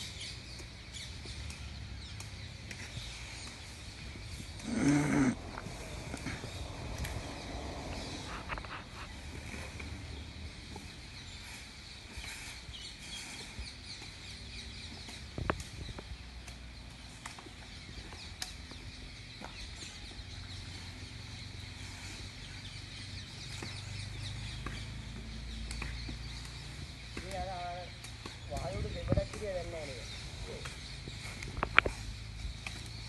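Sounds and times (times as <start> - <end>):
birds chirping: 0.0 - 33.0
twigs and leaves snapping: 0.3 - 11.2, 13.8 - 20.8, 23.2 - 33.0
low rumble: 5.4 - 10.8.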